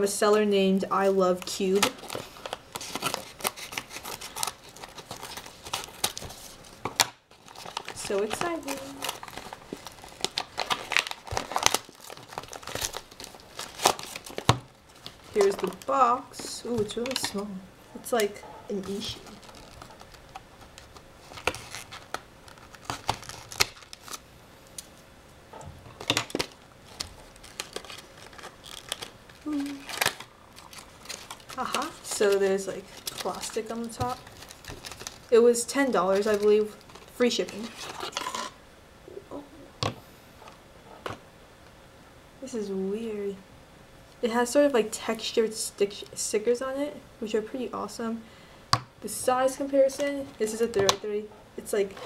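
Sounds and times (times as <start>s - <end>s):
scissors cutting paper envelope: 1.6s - 14.6s.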